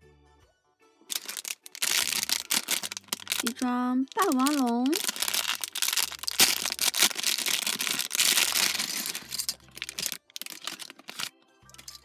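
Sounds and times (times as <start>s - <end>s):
faint music: 0.0s - 12.0s
plastic bag crinkling and tearing: 1.1s - 12.0s
plastic parts clicking on table: 8.5s - 12.0s.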